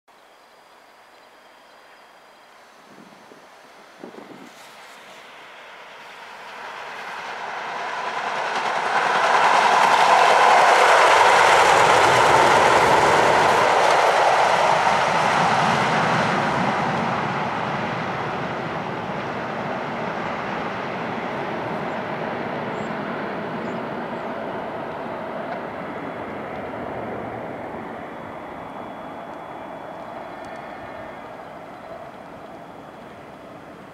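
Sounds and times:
light-rail train running past: 0.1 - 33.9.

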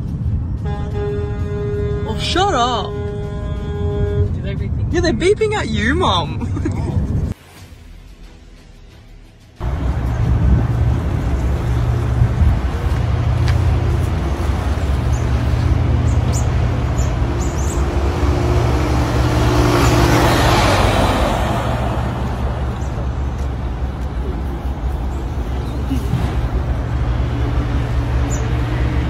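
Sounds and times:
road traffic noise: 0.0 - 29.0
engine running: 7.0 - 29.0
vehicle passing by: 9.6 - 29.0.

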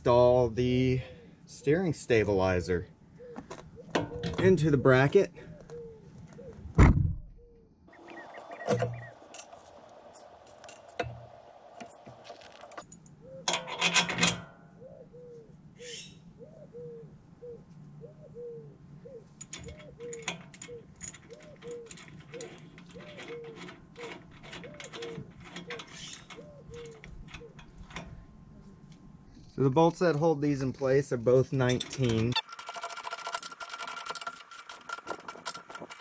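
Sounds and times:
metal clinks and knocks: 8.0 - 14.5, 19.4 - 28.2.

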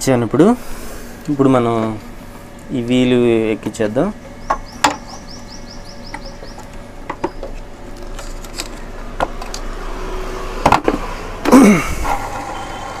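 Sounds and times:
plastic scraping and creaking: 7.1 - 9.7
plastic parts knocking and clicking: 10.6 - 11.6.

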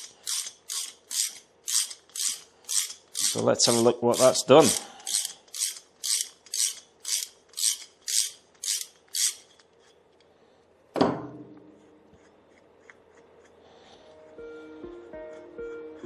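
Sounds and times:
ratchet wrench clicking: 0.0 - 9.9.

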